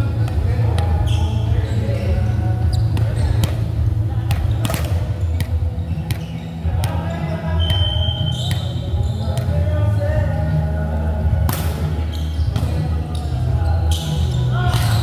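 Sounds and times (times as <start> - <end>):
volleyball striking court: 2.8 - 9.7, 11.4 - 13.2, 14.6 - 15.0
high whistle tone: 7.6 - 8.8.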